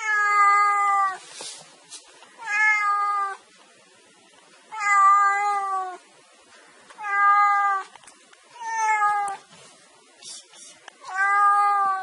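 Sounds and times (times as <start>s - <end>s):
cat meowing: 0.0s - 1.2s, 2.4s - 3.4s, 4.7s - 6.0s, 7.0s - 7.9s, 8.6s - 9.4s, 11.0s - 12.0s.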